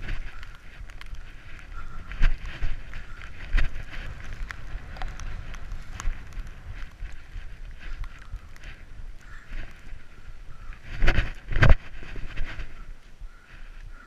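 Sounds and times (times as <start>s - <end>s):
skis running through snow: 0.0s - 14.0s
wind buffeting microphone: 0.0s - 14.0s.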